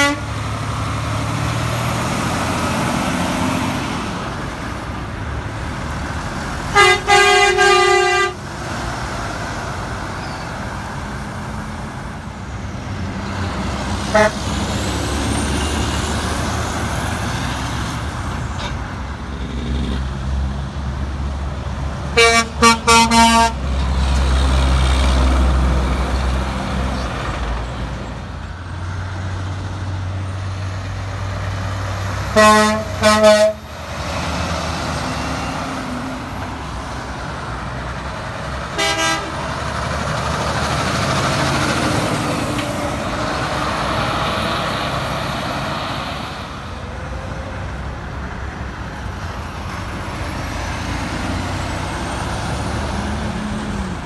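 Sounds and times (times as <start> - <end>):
truck air horn blasts: 0.0 - 0.4, 6.7 - 8.4, 14.1 - 14.6, 22.1 - 23.6, 32.3 - 33.8, 38.8 - 39.5
diesel truck engine rumble: 0.0 - 54.0.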